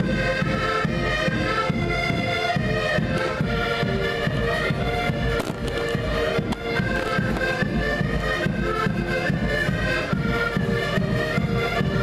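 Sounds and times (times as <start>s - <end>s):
accordion ensemble playing: 0.0s - 12.0s
sharp cracks: 5.3s - 7.6s.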